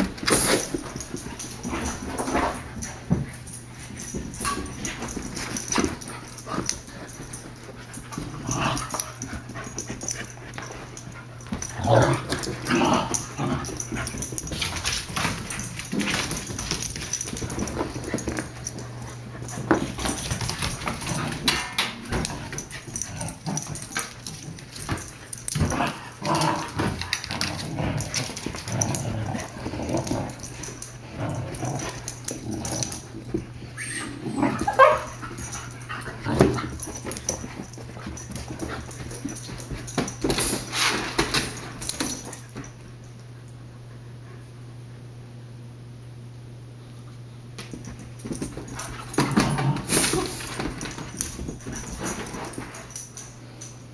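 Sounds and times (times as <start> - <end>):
steady low hum: 0.0 - 53.9
puppies growling and yipping: 25.0 - 37.2.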